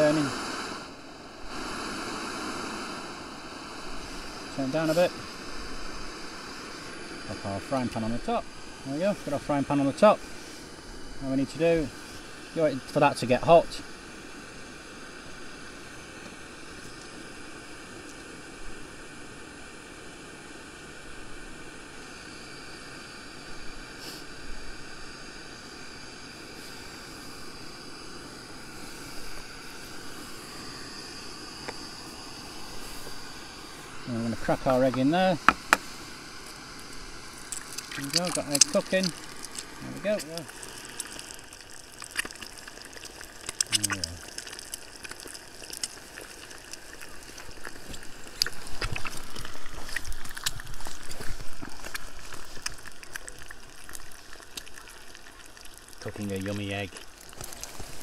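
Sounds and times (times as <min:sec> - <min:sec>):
egg sizzling in oil: 0:00.0 - 0:58.0
gas burner hissing: 0:00.0 - 0:58.0.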